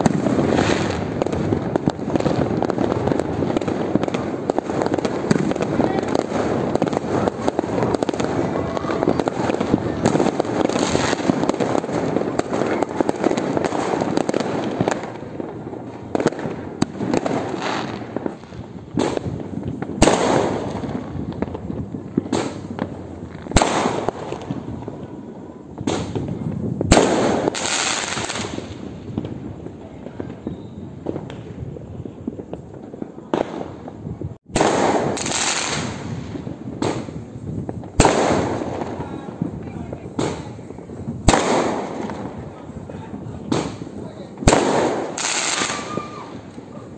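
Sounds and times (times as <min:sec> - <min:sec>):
fireworks bangs: 0:00.0 - 0:46.9.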